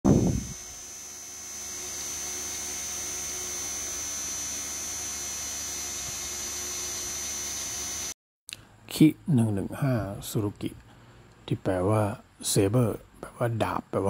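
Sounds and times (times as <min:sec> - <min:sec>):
electric fan humming: 0:00.1 - 0:08.2
thin high whine: 0:00.1 - 0:08.2.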